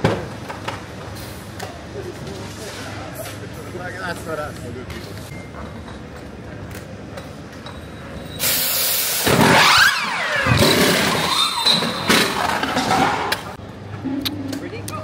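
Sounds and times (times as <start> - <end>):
pneumatic wheel guns hissing: 8.4 - 12.5.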